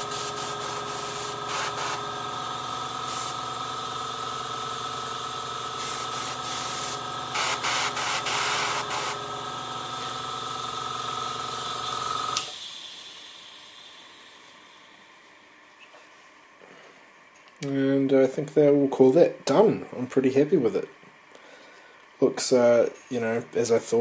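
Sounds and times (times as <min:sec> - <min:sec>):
airbrush spray hiss: 0:00.0 - 0:02.1, 0:03.0 - 0:03.5, 0:05.8 - 0:09.2
compressor humming: 0:00.0 - 0:15.5.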